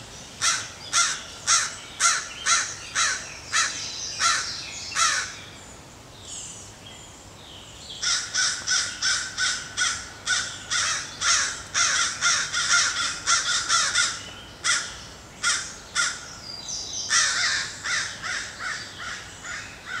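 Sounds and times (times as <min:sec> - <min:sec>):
crow cawing: 0:00.4 - 0:05.3, 0:08.0 - 0:16.2, 0:17.1 - 0:20.0.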